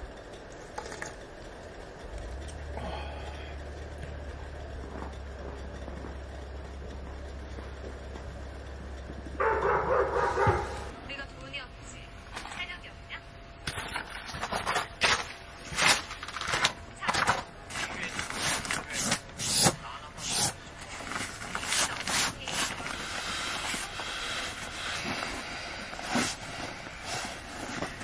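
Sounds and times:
sleeping pad rustling: 20.8 - 28.0
camping gear rustling: 22.4 - 28.0.

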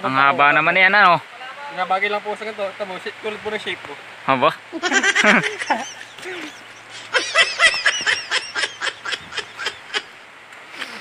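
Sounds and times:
person laughing: 4.7 - 10.1.

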